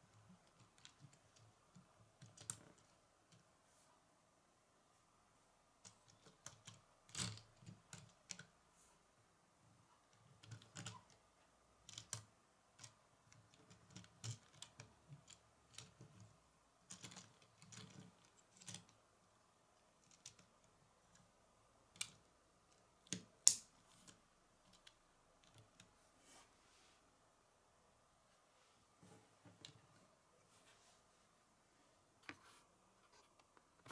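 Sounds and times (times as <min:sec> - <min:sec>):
plastic toy car clicking on wood: 0:00.4 - 0:03.4, 0:10.1 - 0:11.2, 0:11.8 - 0:19.0.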